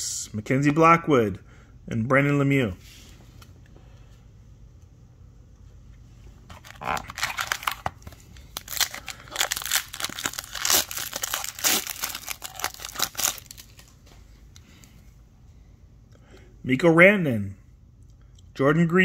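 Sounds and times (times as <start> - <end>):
plastic wrapper tearing and crinkling: 6.5 - 13.9.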